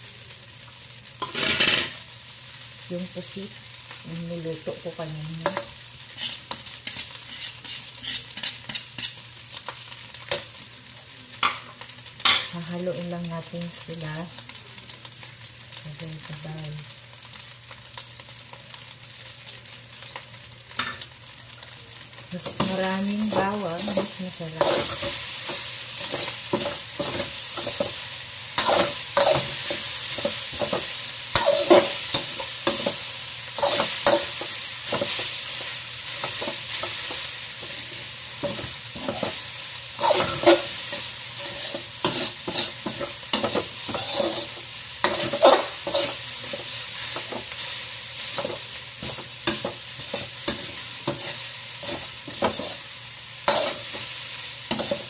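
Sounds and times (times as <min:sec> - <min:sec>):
food sizzling in a pan: 0:00.0 - 0:55.0
spatula scraping a pan: 0:05.5 - 0:09.2, 0:22.4 - 0:28.0, 0:28.6 - 0:39.4, 0:40.0 - 0:55.0.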